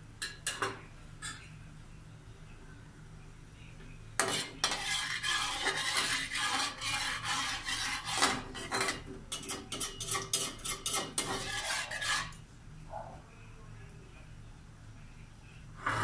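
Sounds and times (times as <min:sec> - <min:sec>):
metal spatula scraping a wok: 0:04.2 - 0:12.4.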